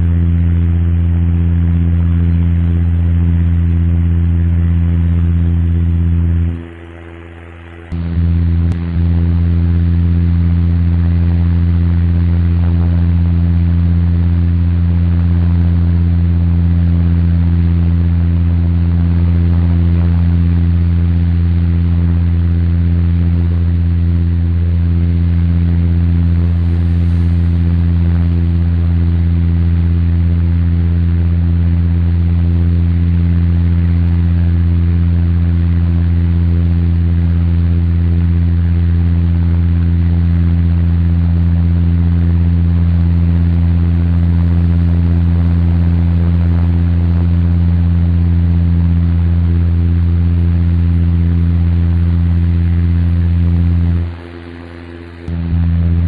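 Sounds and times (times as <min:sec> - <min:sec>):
airliner engine drone: 0:00.0 - 0:56.0
airflow rush: 0:26.0 - 0:28.8.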